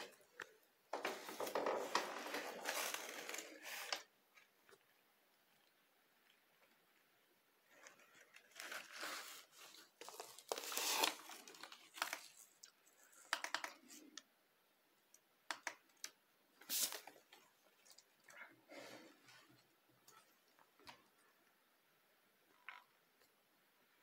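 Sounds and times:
rustling and crinkling handling noise: 0.0s - 5.0s, 7.6s - 14.2s.

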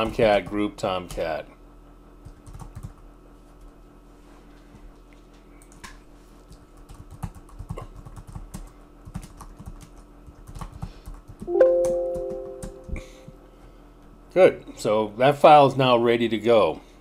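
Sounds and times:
typing on computer keyboard: 2.2s - 3.0s, 6.5s - 12.8s
short electronic chime: 11.5s - 13.3s.

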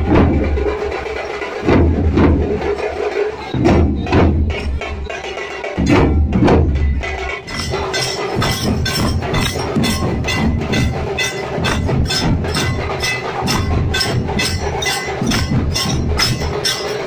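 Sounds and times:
drums beating: 0.0s - 17.0s
hand cymbals clashing: 6.8s - 17.0s.

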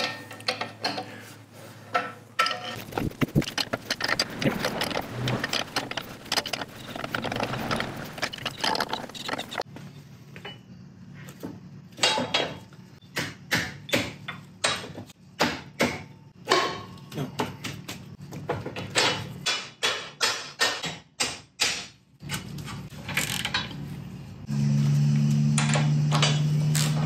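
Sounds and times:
metal clanks and knocks: 0.0s - 1.2s, 1.9s - 9.7s, 11.9s - 21.1s.

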